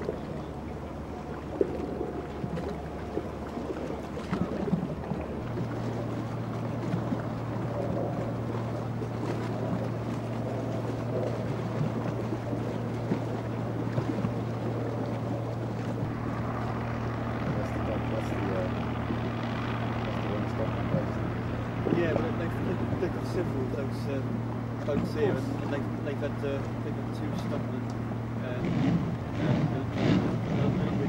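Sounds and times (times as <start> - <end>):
boat engine droning: 0.0 - 31.0.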